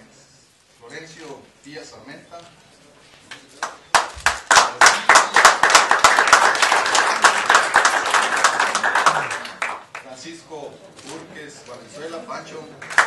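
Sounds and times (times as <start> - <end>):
audience applauding: 3.6 - 10.1, 12.8 - 13.0.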